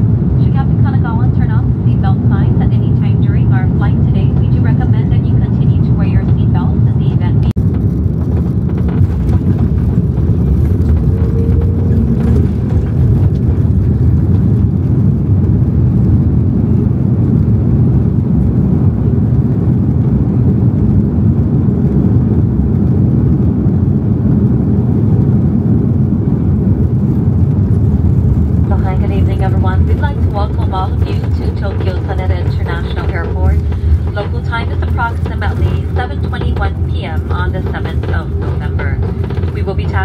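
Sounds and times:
jet engines rumbling: 0:00.0 - 0:40.0
plane wheels rolling: 0:07.6 - 0:16.2, 0:27.8 - 0:40.0.

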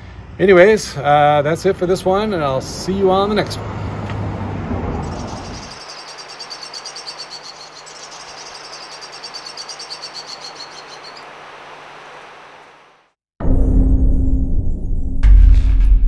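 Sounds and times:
outdoor background noise: 0:00.0 - 0:13.2
rapid high chirps: 0:04.9 - 0:12.7.

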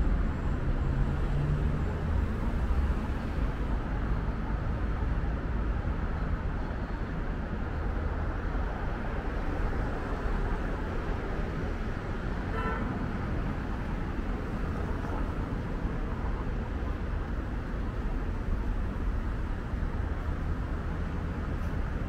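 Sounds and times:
road traffic: 0:00.0 - 0:22.0
vehicle horn toot: 0:12.5 - 0:13.0.

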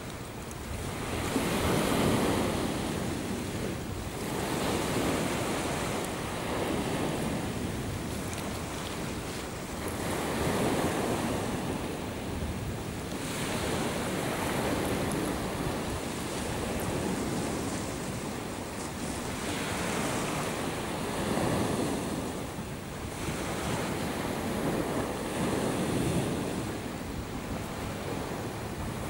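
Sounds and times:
sea waves washing ashore: 0:00.0 - 0:29.0.

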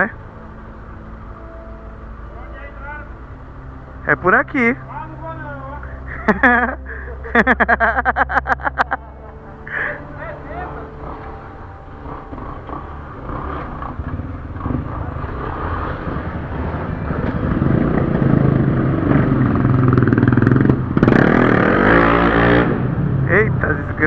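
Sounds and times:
motorcycle engines running: 0:00.0 - 0:24.0
motorcycle engine revving: 0:10.4 - 0:24.0.

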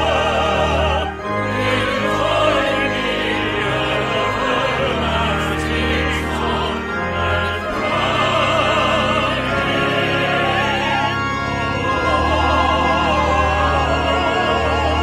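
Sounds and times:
sustained organ chords: 0:00.0 - 0:15.0
voices singing a hymn in harmony: 0:00.0 - 0:15.0.

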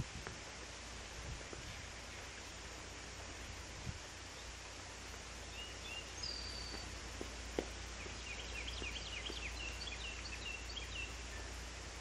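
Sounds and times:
birds chirping: 0:04.2 - 0:12.0.

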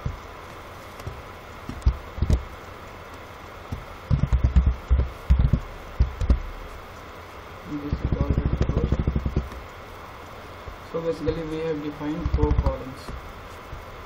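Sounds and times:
steady background noise: 0:00.0 - 0:14.0
keyboard typing thumps: 0:01.0 - 0:02.5, 0:03.7 - 0:06.5, 0:08.0 - 0:09.6, 0:12.2 - 0:13.2.

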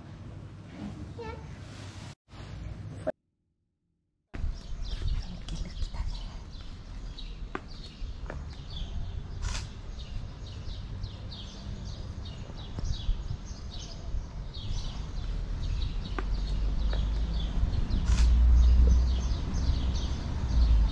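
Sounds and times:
small birds chirping: 0:04.4 - 0:20.9.

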